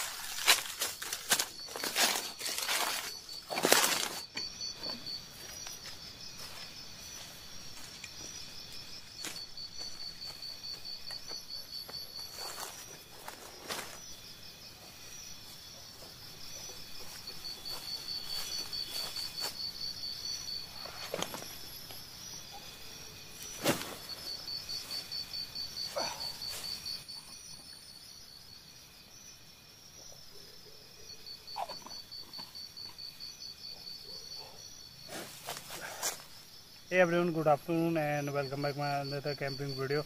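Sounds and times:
footsteps in dry grass: 0.0s - 4.3s, 5.4s - 14.1s, 15.5s - 19.7s
insects calling: 0.0s - 40.0s.

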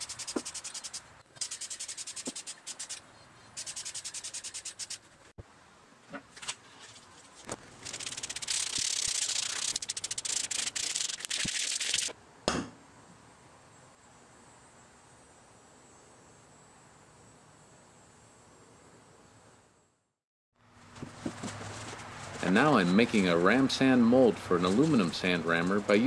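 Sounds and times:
aerosol spray can hissing: 0.0s - 3.0s, 3.6s - 5.0s, 7.8s - 12.1s.

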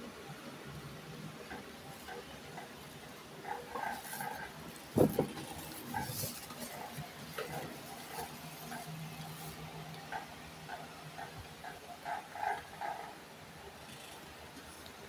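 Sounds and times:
knocks near microphone: 5.0s - 5.4s.

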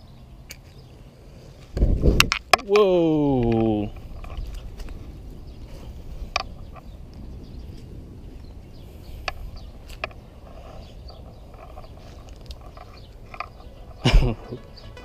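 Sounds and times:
low steady fire rumble: 3.8s - 14.4s.

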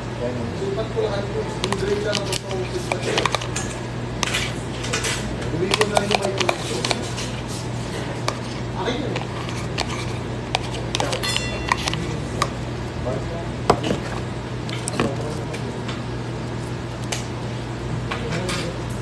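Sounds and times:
steady low hum: 0.0s - 19.0s
metal spoon clicking and scraping: 1.6s - 7.3s, 9.2s - 12.5s.

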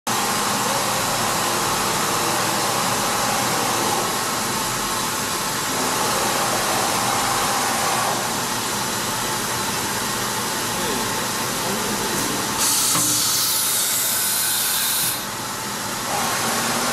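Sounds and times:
machine hiss: 12.6s - 15.3s.

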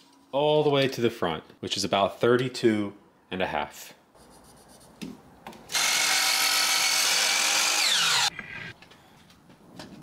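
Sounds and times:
miter saw cutting: 5.7s - 8.3s.

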